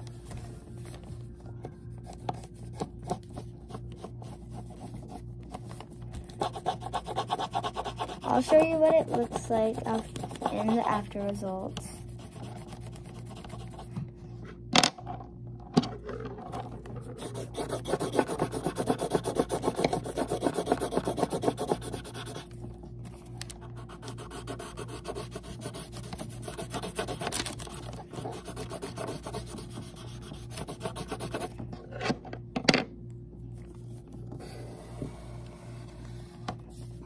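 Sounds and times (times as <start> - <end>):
paintbrush rubbing over paper: 6.4 - 13.9.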